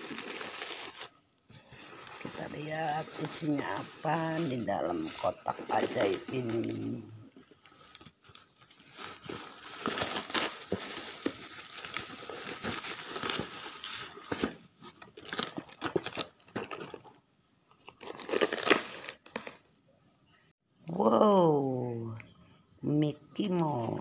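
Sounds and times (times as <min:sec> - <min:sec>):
packaging tearing: 0:00.0 - 0:06.8, 0:07.4 - 0:17.0, 0:17.9 - 0:19.6
plastic packaging crinkling: 0:00.0 - 0:17.2, 0:17.8 - 0:19.7.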